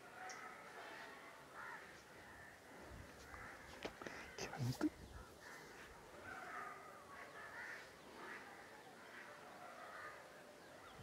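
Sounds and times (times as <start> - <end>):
crows cawing: 0.0 - 11.0.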